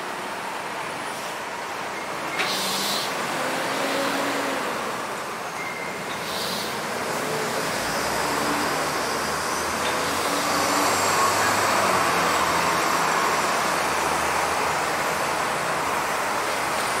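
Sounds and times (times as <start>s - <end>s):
street traffic noise: 0.0s - 17.0s
truck running close by: 6.2s - 17.0s.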